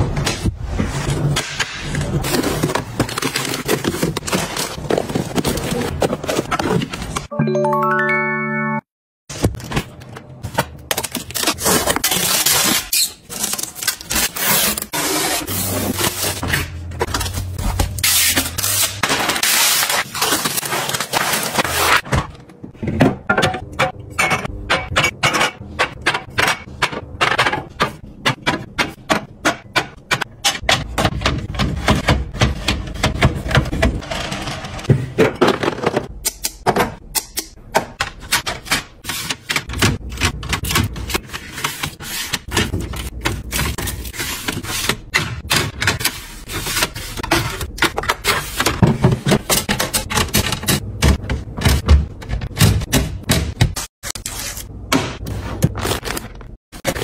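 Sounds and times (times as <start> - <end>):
bottles and trays clinking on shelves: 16.1 - 53.8.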